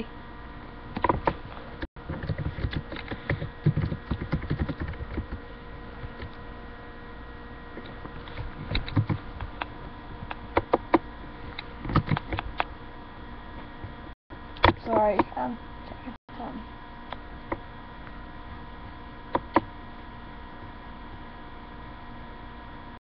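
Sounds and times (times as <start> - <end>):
steady low hum: 0.0 - 23.0
typing on computer keyboard: 2.1 - 5.4, 8.7 - 9.2, 11.9 - 12.5.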